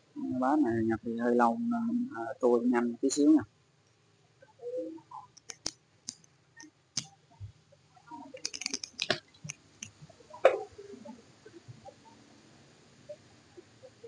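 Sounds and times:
buttons clicking: 5.2s - 6.2s.

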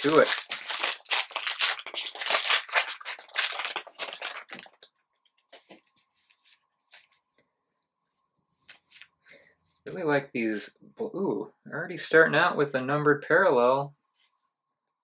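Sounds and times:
cards rustling: 0.0s - 4.9s
foil wrapper crinkling and tearing: 0.0s - 4.9s.

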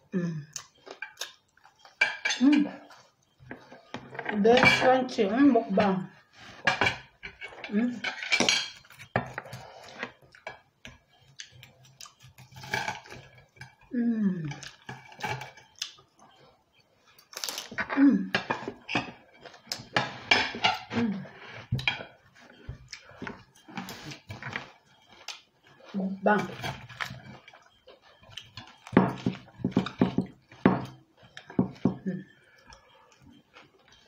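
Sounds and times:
cutlery clinking on plates: 1.8s - 2.7s, 6.6s - 9.6s, 18.3s - 21.0s, 21.6s - 25.4s, 28.2s - 32.0s.

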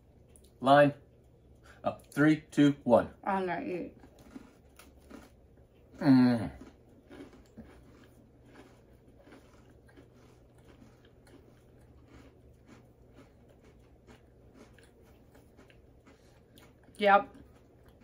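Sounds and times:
cookie chewing crunches: 3.9s - 18.0s.

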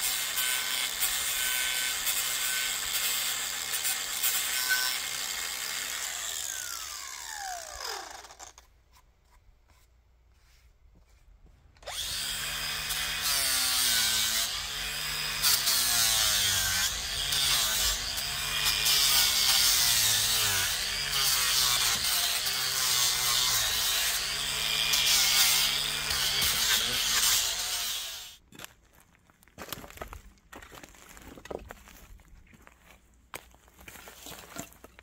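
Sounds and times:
angle grinder grinding wood: 0.0s - 9.8s, 11.8s - 28.4s
grinder winding down whine: 6.0s - 8.6s.

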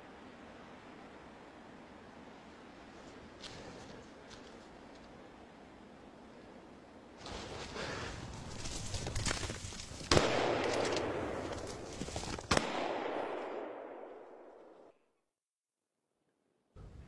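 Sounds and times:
faint cracks: 7.2s - 12.8s
rifle shots with rolling echo: 10.1s - 11.9s, 12.5s - 14.9s.

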